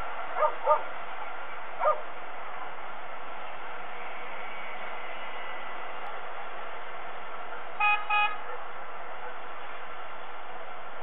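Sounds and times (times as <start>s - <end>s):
wind hiss: 0.0s - 7.8s
vehicle horn toots: 7.8s - 8.6s.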